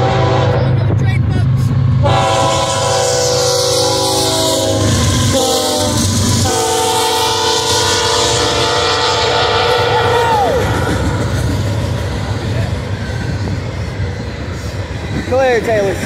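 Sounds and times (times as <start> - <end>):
locomotive air horn: 0.0 - 0.8, 2.0 - 11.0
diesel engines rumbling: 0.0 - 16.0
train rolling: 0.0 - 16.0.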